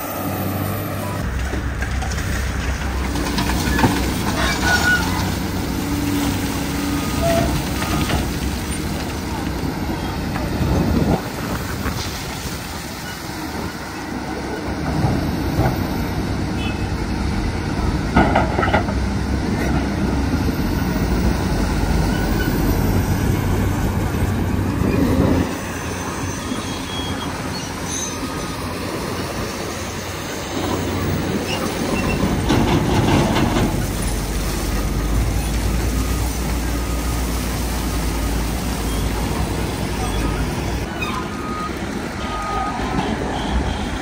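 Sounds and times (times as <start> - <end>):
diesel excavator engine running: 0.0 - 44.0
dirt and rock clattering into truck: 1.4 - 9.6, 31.5 - 34.1.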